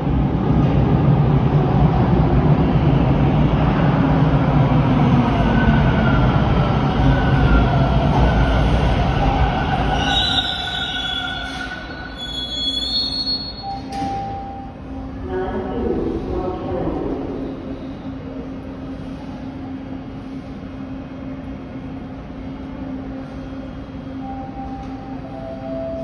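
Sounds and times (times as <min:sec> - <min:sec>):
train whine: 0:00.0 - 0:26.0
wheel and brake squeals: 0:09.9 - 0:14.2.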